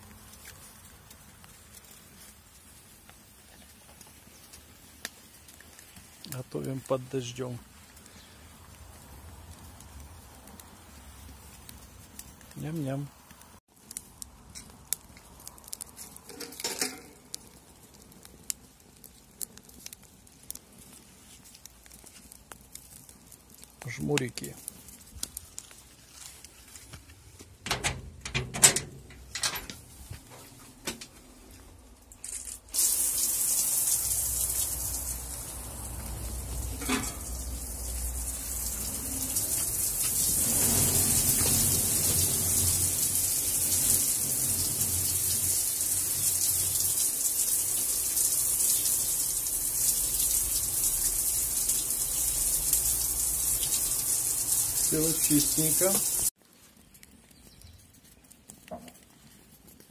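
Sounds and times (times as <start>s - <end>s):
water pouring from a tap: 32.7s - 56.3s.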